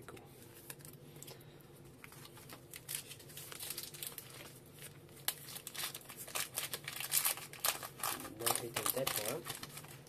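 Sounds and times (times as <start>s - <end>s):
foil wrapper crinkling and tearing: 2.0s - 10.0s.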